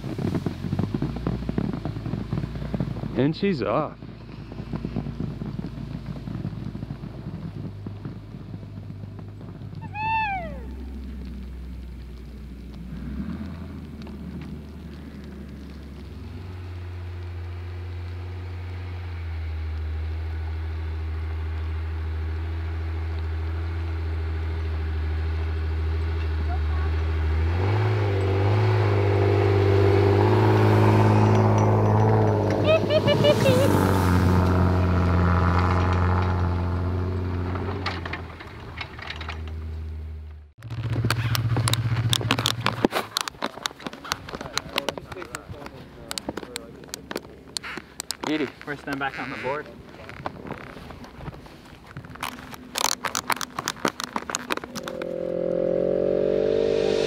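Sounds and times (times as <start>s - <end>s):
crunching snow: 0.0s - 18.8s, 40.6s - 56.0s
car engine running: 0.0s - 38.7s, 43.6s - 57.0s
low engine hum: 0.0s - 57.0s.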